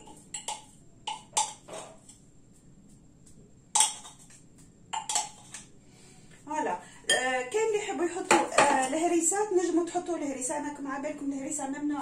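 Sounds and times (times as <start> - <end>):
knife scraping glass bowl: 5.0 - 5.7.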